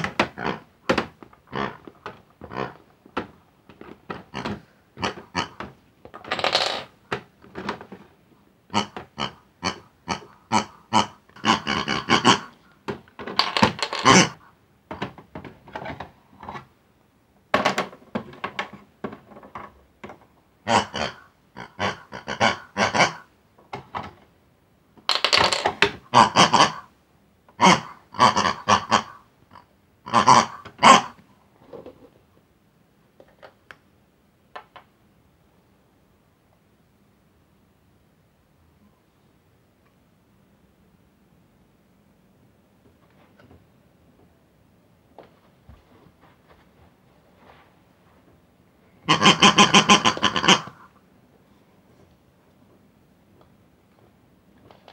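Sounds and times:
pig-like oinks and squeals: 8.7 - 12.6, 13.6 - 14.4, 20.7 - 23.3, 27.6 - 31.2, 49.0 - 50.9.

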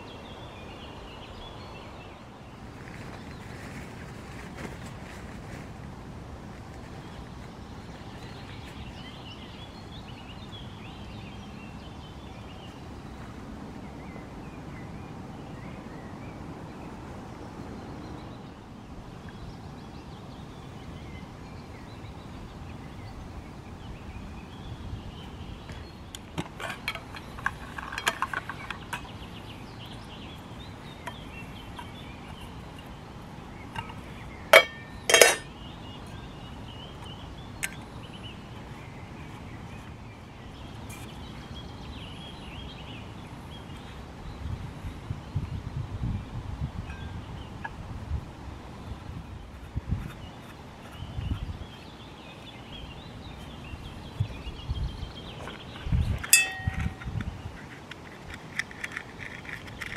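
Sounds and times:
metal cookware clinking and rattling: 33.8 - 35.5, 56.3 - 57.1
metal cookware ringing clanks: 34.6 - 35.5, 56.3 - 57.1.

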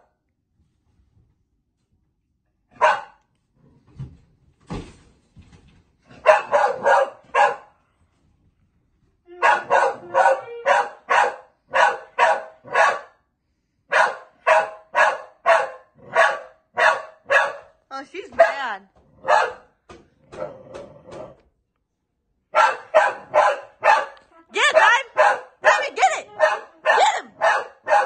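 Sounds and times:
dog barking: 2.7 - 3.2, 6.1 - 7.8, 9.3 - 13.2, 13.9 - 19.8, 22.5 - 28.0.

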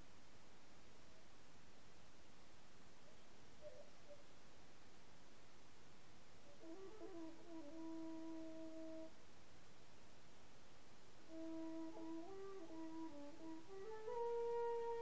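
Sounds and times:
flute playing low notes: 6.4 - 9.2, 11.3 - 15.0.

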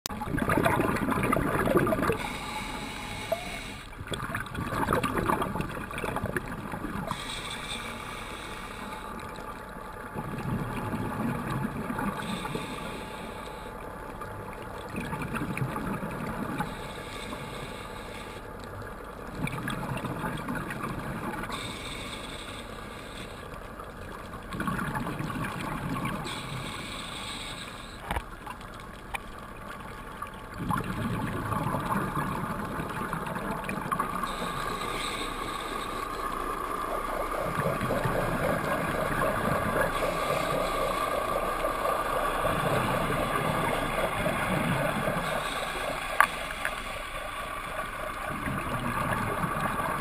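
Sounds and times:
gurgling exhaled bubbles: 0.1 - 2.6, 3.2 - 7.4, 10.0 - 12.7, 14.6 - 16.8, 19.3 - 21.8, 24.3 - 26.8, 30.2 - 50.0
regulator inhalation hiss: 2.1 - 3.9, 7.1 - 9.2, 12.2 - 13.8, 16.6 - 18.5, 21.5 - 23.5, 26.2 - 28.0, 34.2 - 37.2, 39.8 - 48.0.

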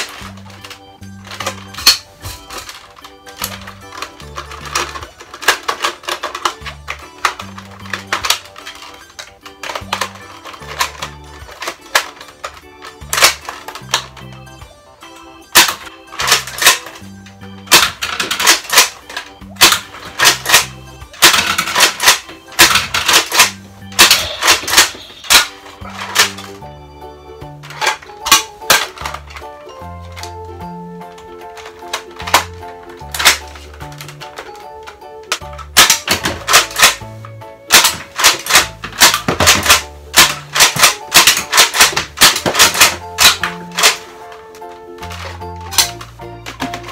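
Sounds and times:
toy blaster plastic clacks: 0.0 - 14.6, 15.5 - 26.6, 27.6 - 30.4, 31.0 - 46.9
background music: 0.0 - 46.9
background music with bass: 23.5 - 41.1.

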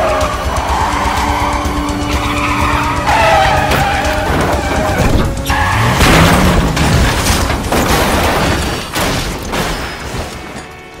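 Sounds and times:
crunching debris: 3.3 - 11.0
car crash booming impacts: 3.6 - 10.6.

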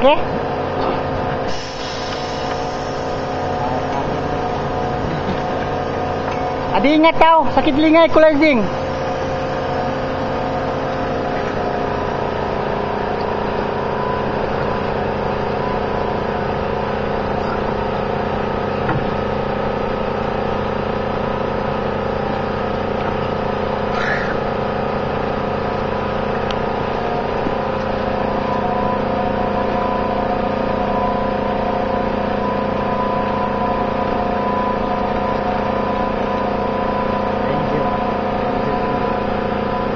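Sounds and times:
engine humming steadily: 0.0 - 39.9
brief high squeak: 23.9 - 24.4.

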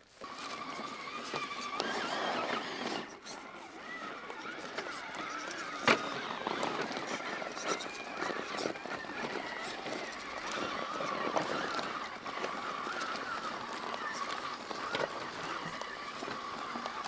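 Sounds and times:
electric motor and gears whining: 0.0 - 17.0
tires clattering over rocks: 0.2 - 17.0.

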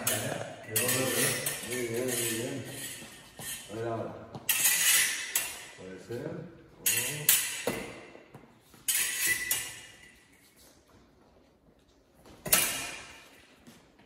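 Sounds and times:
fencing blades clinking: 0.0 - 3.8, 4.4 - 5.8, 6.8 - 10.8, 12.3 - 13.7.

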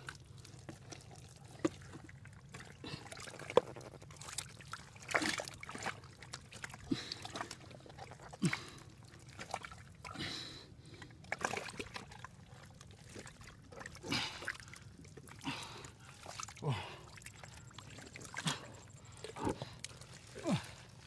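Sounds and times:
water splashing and trickling: 0.0 - 21.0.

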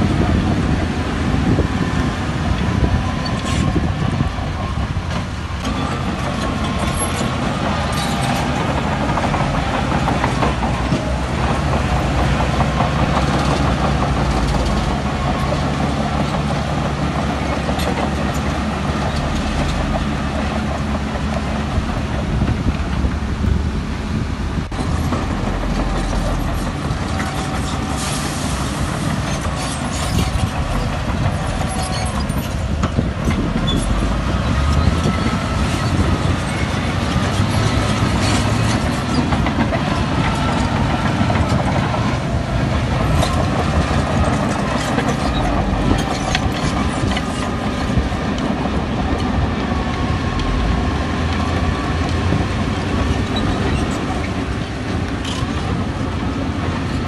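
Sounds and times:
bulldozer diesel engine running: 0.0 - 57.0
steel tracks clanking: 0.0 - 57.0.

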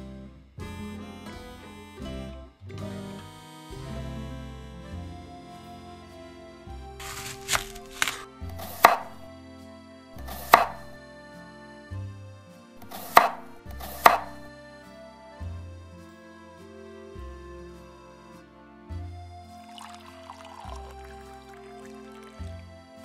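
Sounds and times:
knife scraping cut: 7.0 - 9.2, 10.2 - 10.9, 12.8 - 14.4
knife knocking on wooden board: 12.9 - 13.4, 14.0 - 14.4.

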